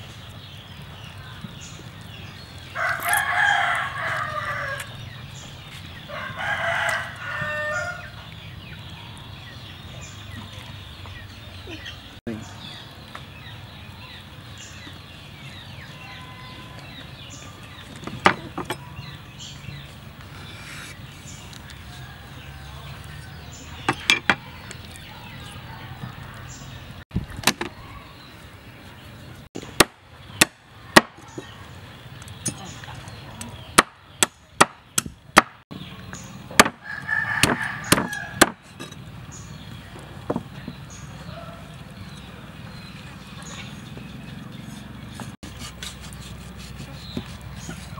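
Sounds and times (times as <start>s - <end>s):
birds chirping: 0.0s - 47.9s
rooster crowing: 2.8s - 5.0s, 6.1s - 8.2s, 21.9s - 23.5s, 36.8s - 38.4s
knife chopping on wooden board: 37.4s - 38.6s.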